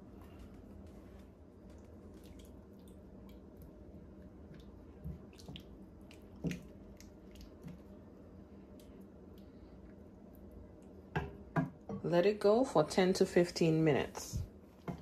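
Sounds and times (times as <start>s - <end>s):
faint steady hum: 0.0s - 15.0s
sauce simmering with wet pops: 1.6s - 11.9s.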